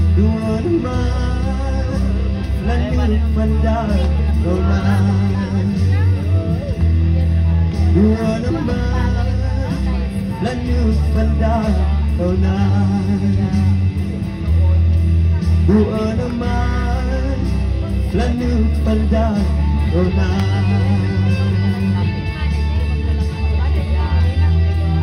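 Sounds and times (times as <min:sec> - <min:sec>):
man singing into a microphone: 0:00.0 - 0:14.6, 0:15.4 - 0:25.0
amplified band with bass and guitar: 0:00.0 - 0:25.0.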